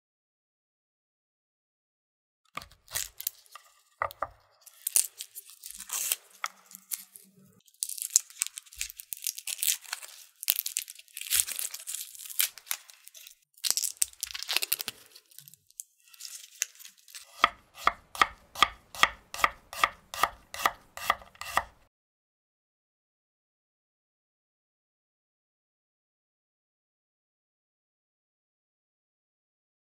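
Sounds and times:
garlic skin crackling and tearing: 2.6 - 3.8, 4.6 - 19.2
knife slicing on wooden board: 17.1 - 21.8.

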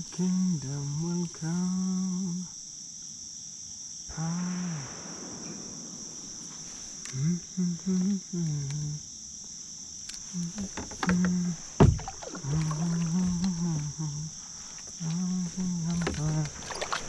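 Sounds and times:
high buzz of insects: 0.0 - 17.0
man muttering: 7.1 - 9.0, 12.5 - 14.3.

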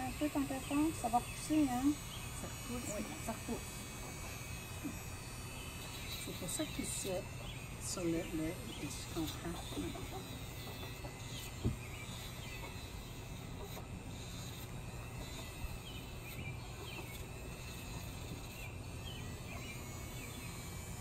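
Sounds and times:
rotary grinding tool humming: 0.0 - 21.0.

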